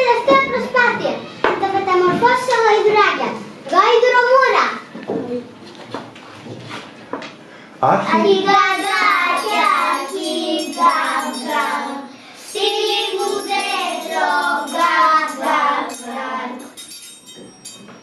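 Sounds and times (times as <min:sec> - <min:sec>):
children singing: 0:08.1 - 0:16.9
music with jingle bells: 0:08.4 - 0:18.0.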